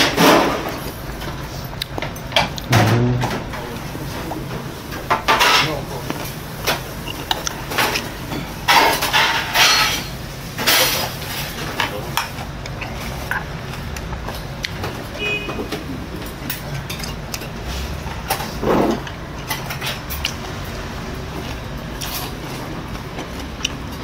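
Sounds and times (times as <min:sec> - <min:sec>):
steady low hum: 0:00.0 - 0:24.0
man eating noises: 0:00.6 - 0:08.6, 0:10.7 - 0:24.0
utensils clicking against bowls: 0:04.9 - 0:14.9, 0:18.2 - 0:20.5.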